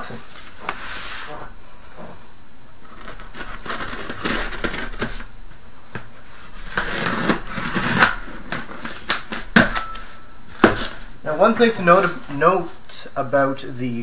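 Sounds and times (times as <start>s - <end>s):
cardboard box rustling and scraping: 2.8s - 5.3s, 6.3s - 12.4s.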